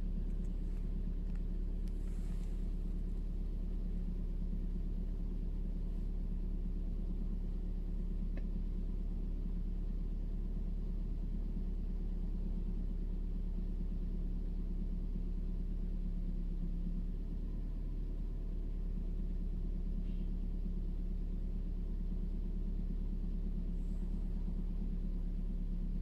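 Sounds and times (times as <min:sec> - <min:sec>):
constant hum: 0:00.0 - 0:26.0
low mechanical rumble: 0:00.0 - 0:26.0
faint tick: 0:08.3 - 0:08.5.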